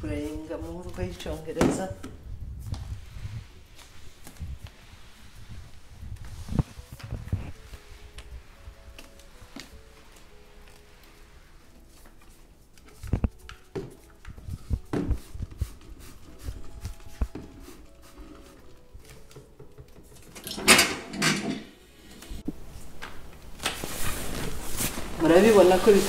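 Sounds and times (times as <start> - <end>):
mop knocking on wooden floor: 0.8 - 2.2, 13.2 - 15.6.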